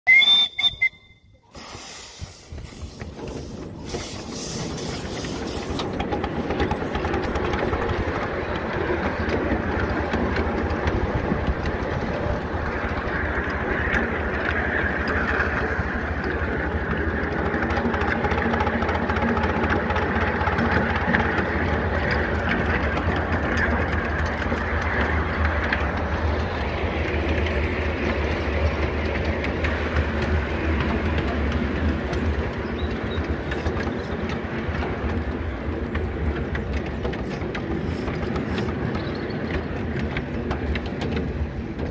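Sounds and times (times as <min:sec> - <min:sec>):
miniature steam locomotive running: 0:00.1 - 0:41.9
steam hiss: 0:01.4 - 0:06.0.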